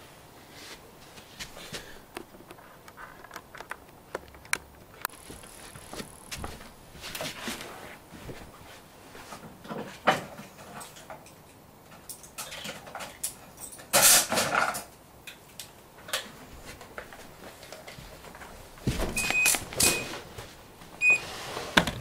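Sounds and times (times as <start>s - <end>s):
handling clicks and rustles: 2.1s - 7.7s
rustling hiss: 5.1s - 9.4s.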